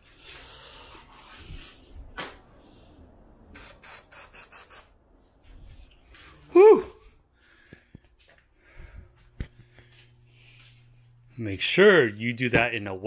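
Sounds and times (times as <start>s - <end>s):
aerosol spray hissing: 3.5s - 4.9s.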